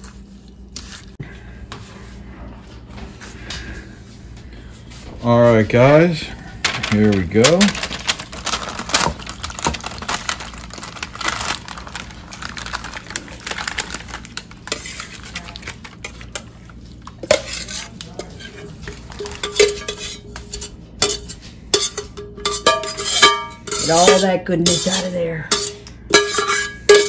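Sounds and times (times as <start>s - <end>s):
metal spoon scraping saucepan: 17.2s - 27.0s.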